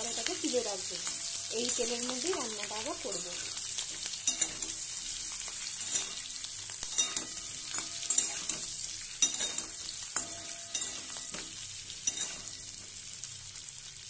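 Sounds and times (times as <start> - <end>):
potatoes sizzling in hot oil: 0.0 - 14.0
spatula scraping and knocking pan: 1.0 - 12.9.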